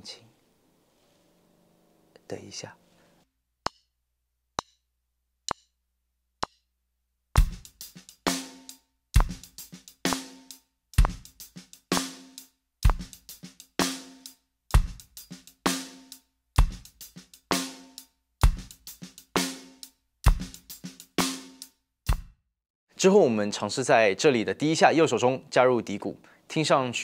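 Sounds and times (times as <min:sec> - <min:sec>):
bass drum: 0:07.4 - 0:16.0, 0:16.6 - 0:22.4
ringing snare backbeat: 0:07.4 - 0:22.3
shuffled hi-hat: 0:07.4 - 0:22.3
snare ghost notes: 0:07.4 - 0:22.3.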